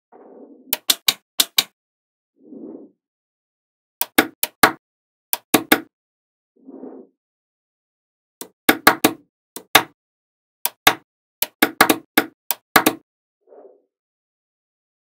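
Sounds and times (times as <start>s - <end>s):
magnetic balls clicking together: 0.8s - 1.7s.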